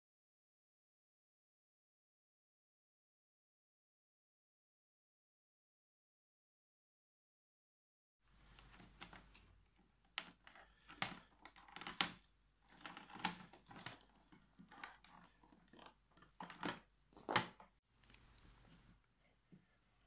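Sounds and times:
cable rustling and sliding: 0:08.3 - 0:20.0
clicks and knocks on plastic: 0:08.6 - 0:17.8.

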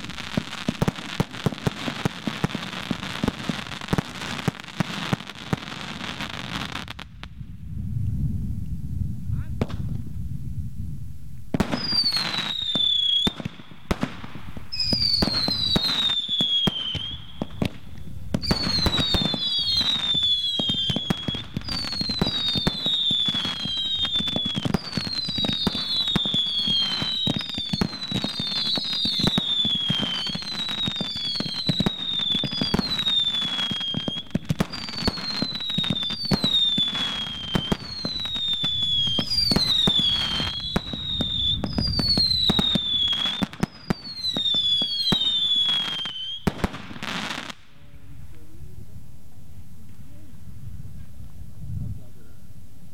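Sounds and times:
firework pops and crackling: 0:00.0 - 0:07.4, 0:09.6 - 0:10.0, 0:11.5 - 0:48.4
firework whistles: 0:11.6 - 0:47.5.

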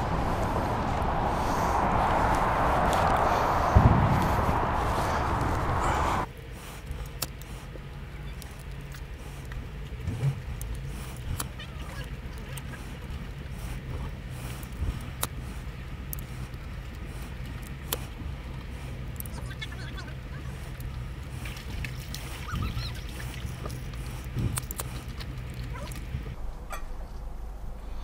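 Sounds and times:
car engine idling: 0:00.0 - 0:21.8
wind and rustling: 0:00.0 - 0:28.0.

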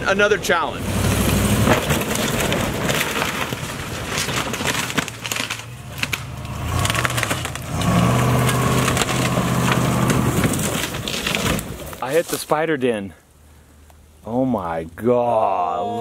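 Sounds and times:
suv engine running: 0:00.2 - 0:12.0
wood and branches cracking: 0:00.8 - 0:12.8.

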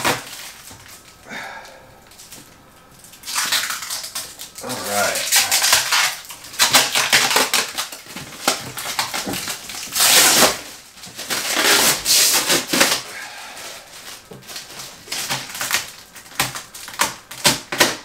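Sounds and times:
plastic tearing rustles: 0:00.0 - 0:01.2, 0:02.0 - 0:18.0
plastic wrapping crinkling: 0:00.0 - 0:18.0.

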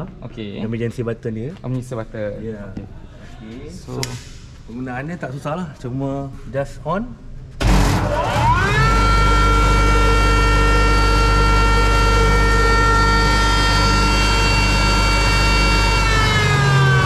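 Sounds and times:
grinder motor whining: 0:07.6 - 0:17.0.

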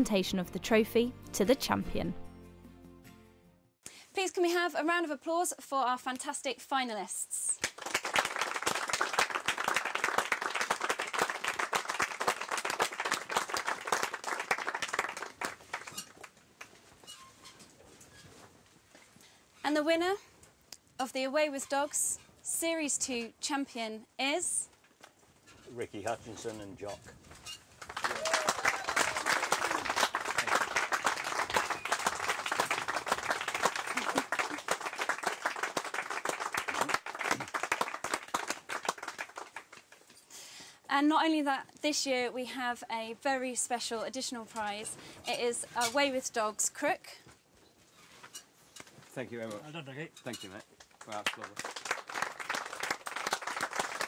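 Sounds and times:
crowd clapping: 0:07.6 - 0:16.7, 0:27.8 - 0:40.0, 0:50.8 - 0:54.0.

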